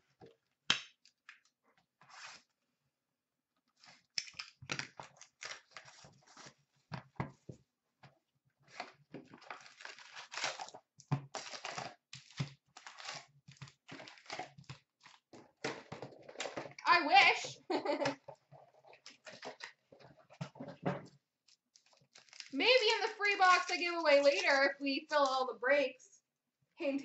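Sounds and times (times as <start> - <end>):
plastic wrap tearing and crinkling: 3.8 - 6.6, 8.7 - 15.3, 21.7 - 24.7.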